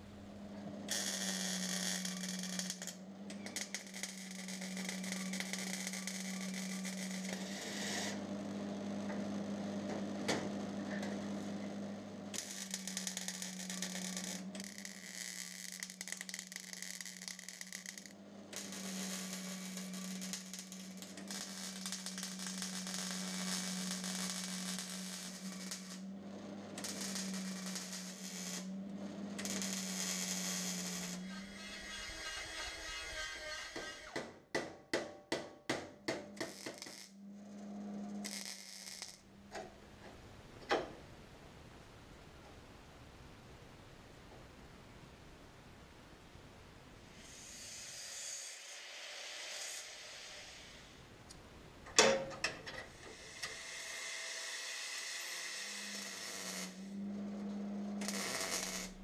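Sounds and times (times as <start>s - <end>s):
power tool working on metal: 0.9s - 8.3s, 12.4s - 26.1s, 26.8s - 28.8s, 29.4s - 34.2s, 52.9s - 59.0s
hissy crackling noise: 12.3s - 26.0s, 39.9s - 51.9s.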